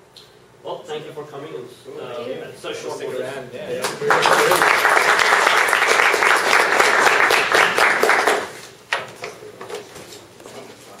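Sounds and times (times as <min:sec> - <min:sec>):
audience applauding: 0:03.9 - 0:08.7.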